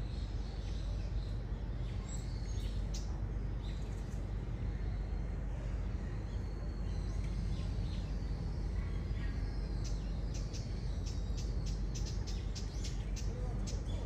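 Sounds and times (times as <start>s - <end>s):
birds chirping: 0.0s - 14.0s
steady low rumble: 0.0s - 14.0s.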